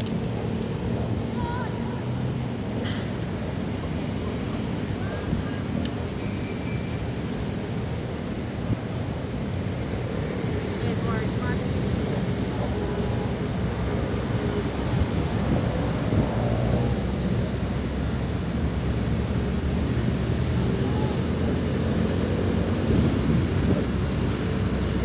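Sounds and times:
low engine rumble: 0.0s - 25.0s
wind on microphone: 7.4s - 25.0s.

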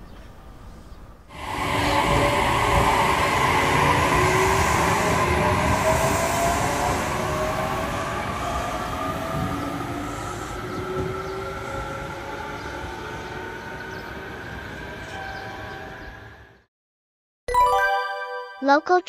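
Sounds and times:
train motor whine rising: 1.3s - 15.2s
train wheels rumbling on track: 1.3s - 16.1s.

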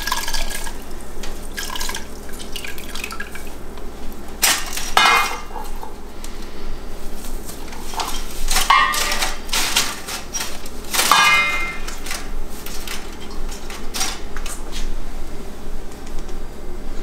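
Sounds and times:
dishes clinking: 4.4s - 6.0s, 7.6s - 14.3s
wrappings rustling: 6.9s - 15.0s.

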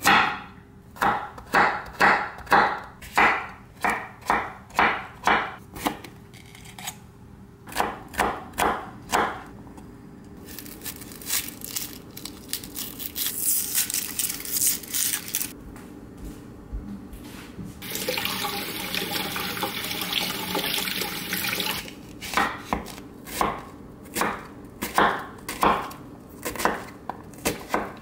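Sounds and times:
knife chopping on wooden board: 0.0s - 6.1s, 7.7s - 9.5s, 22.2s - 28.0s
onion skin crinkling: 10.4s - 15.6s.

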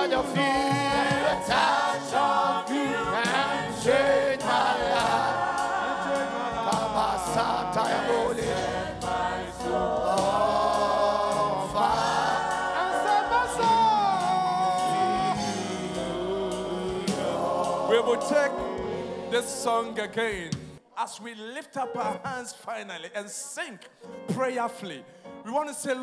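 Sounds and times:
choir singing gospel song: 0.0s - 20.8s
instrumental backing: 0.0s - 20.8s.

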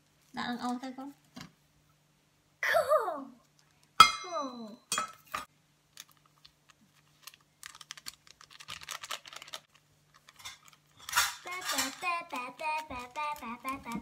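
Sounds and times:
child's voice: 2.6s - 3.5s, 4.2s - 4.8s, 11.4s - 14.0s
paper sachet crinkling and tearing: 5.9s - 14.0s.

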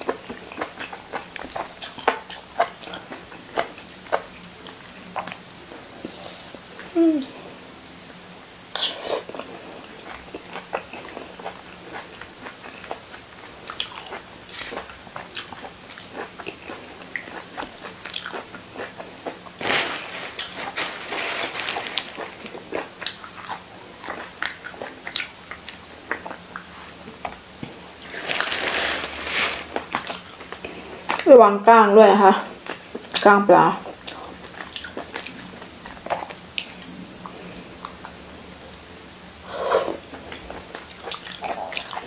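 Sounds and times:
person chewing and smacking: 0.0s - 5.8s, 8.7s - 19.7s, 21.9s - 28.5s, 29.7s - 31.3s, 33.9s - 38.8s, 40.0s - 42.0s.

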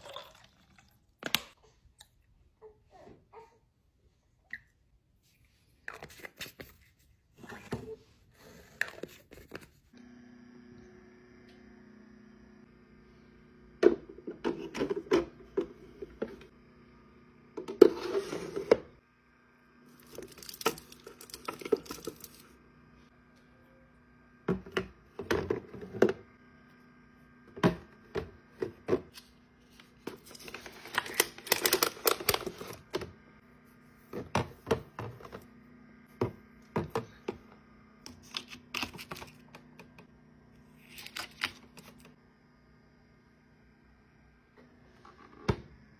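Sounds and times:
plastic packaging crinkling: 20.0s - 22.5s, 30.2s - 32.7s.

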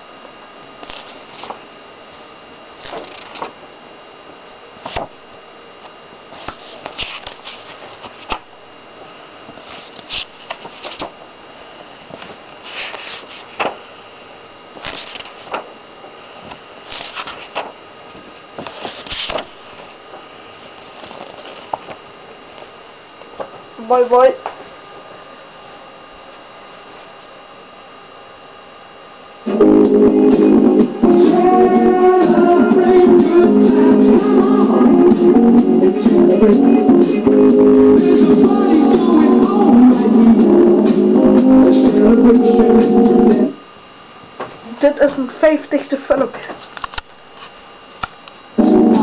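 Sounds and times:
faint high whine: 0.0s - 49.0s
magazine pages rustling: 0.8s - 1.6s, 2.8s - 3.6s, 4.8s - 5.2s, 6.3s - 8.4s, 9.6s - 11.2s, 12.1s - 13.8s, 14.8s - 15.7s, 16.4s - 22.0s.

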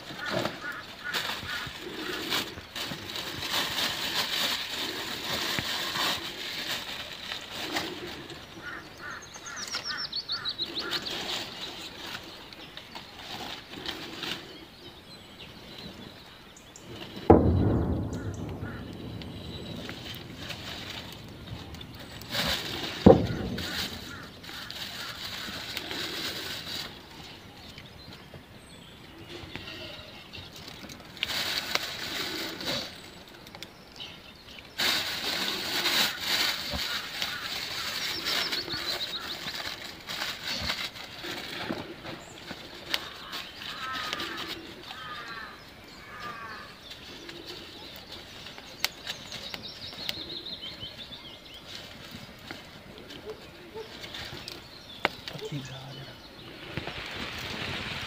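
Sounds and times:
rustling: 0.0s - 58.0s
bird chirping: 7.1s - 20.5s, 36.8s - 57.8s.

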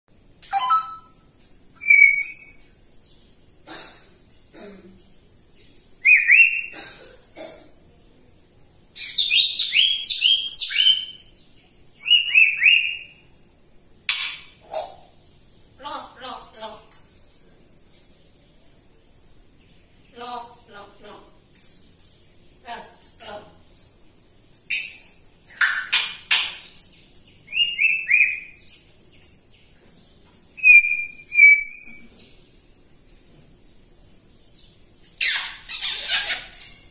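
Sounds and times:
parrot whistled chirps: 0.5s - 1.2s, 1.8s - 2.7s, 6.0s - 6.7s, 12.0s - 13.2s, 27.5s - 28.6s, 30.6s - 32.1s
parrot whistles: 30.6s - 32.0s
parrot raspy calls: 35.2s - 36.8s.

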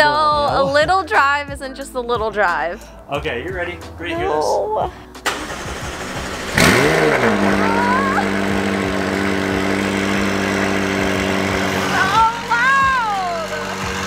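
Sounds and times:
car engine starting and idling: 5.0s - 14.0s.

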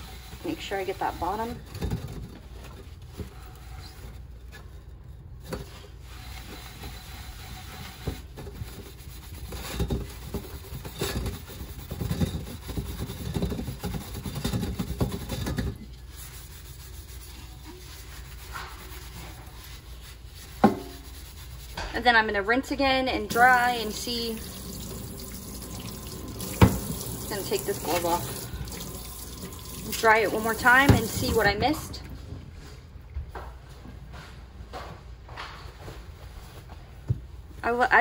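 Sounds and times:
sanding sponge scrubbing: 16.0s - 21.8s.

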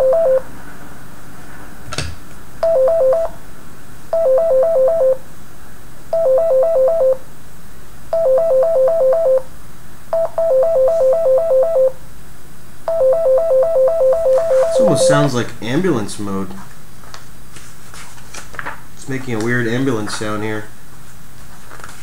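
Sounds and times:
robot beeping two-tone siren pattern: 0.0s - 0.4s, 2.6s - 3.4s, 4.2s - 5.2s, 6.2s - 7.2s, 8.2s - 9.5s, 10.2s - 12.0s, 12.9s - 15.3s.

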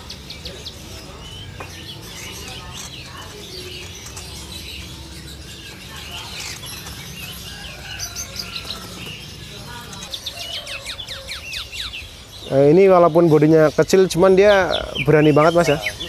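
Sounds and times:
birds chirping and whistling: 0.0s - 16.0s.

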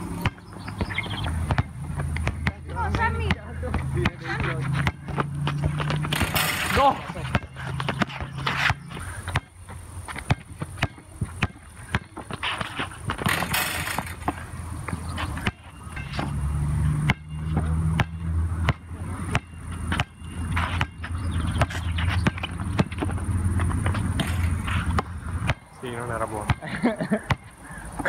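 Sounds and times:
basketball bouncing: 0.0s - 27.6s
sneakers scuffing: 0.3s - 16.5s, 19.8s - 25.1s.

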